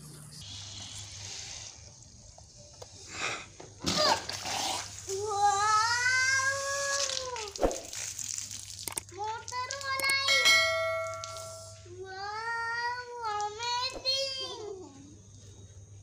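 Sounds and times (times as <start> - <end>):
ringing bell chime: 10.2 - 11.9.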